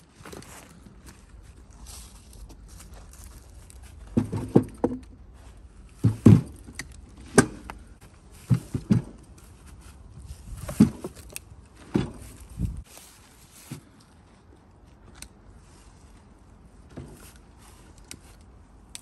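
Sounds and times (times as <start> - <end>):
footsteps in dry leaves: 0.0 - 4.1, 12.2 - 14.4
logs knocking and thudding: 3.8 - 5.3, 5.9 - 9.5, 10.4 - 12.8.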